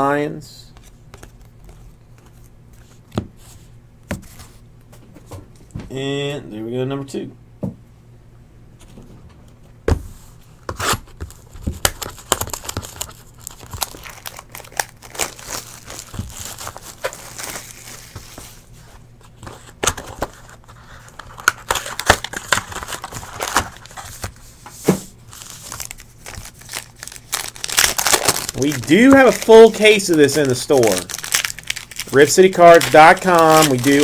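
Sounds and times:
foil card packs crinkling: 10.7s - 18.7s, 19.3s - 24.4s, 25.2s - 34.0s.

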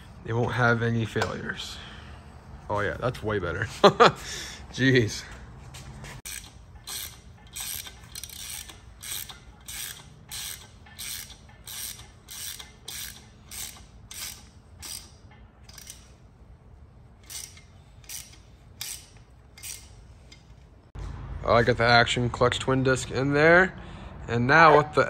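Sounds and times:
ratchet wrench clicking: 6.2s - 16.2s, 17.2s - 20.6s.

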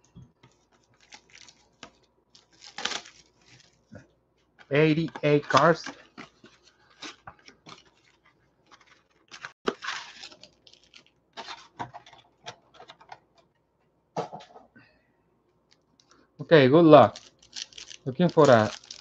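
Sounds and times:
plastic wrap crinkling: 0.4s - 3.9s, 4.9s - 12.9s, 16.9s - 19.0s.

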